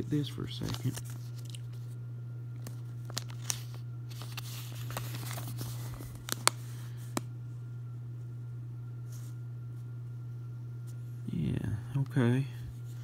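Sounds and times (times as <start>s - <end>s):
paper leaflet rustling: 0.0s - 2.0s, 2.6s - 7.2s
steady low hum: 0.0s - 13.0s.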